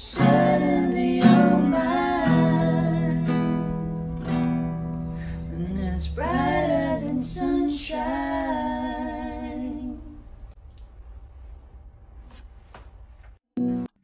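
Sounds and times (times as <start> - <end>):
woman singing slow notes: 0.0 - 3.7, 5.3 - 10.2
strummed acoustic guitar: 0.1 - 7.4.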